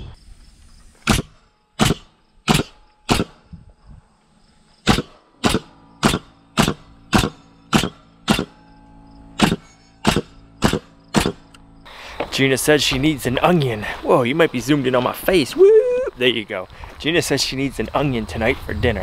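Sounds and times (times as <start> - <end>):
nail gun firing into wood: 1.0 - 3.4, 4.8 - 8.6, 9.4 - 11.5.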